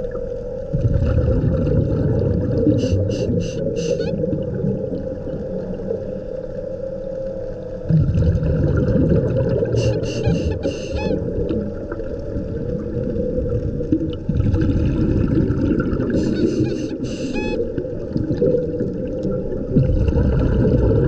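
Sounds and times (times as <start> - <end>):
bubbling exhalation underwater: 0.7 - 5.2, 7.9 - 10.1, 12.5 - 21.0
hissing regulator inhalation: 2.8 - 4.2, 9.8 - 11.2, 16.2 - 17.6.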